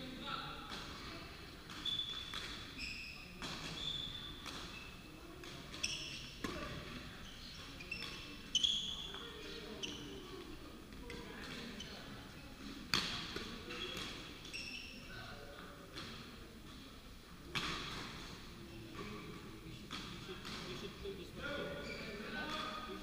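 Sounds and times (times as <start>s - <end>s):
shoes squeaking on wooden floor: 1.8s - 5.0s, 5.8s - 6.4s, 13.7s - 15.0s, 21.7s - 22.3s.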